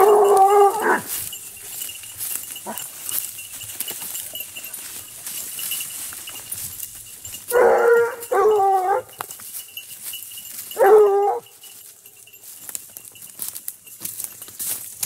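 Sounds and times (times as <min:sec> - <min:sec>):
hound baying: 0:00.0 - 0:05.0, 0:07.4 - 0:09.4, 0:10.6 - 0:11.8.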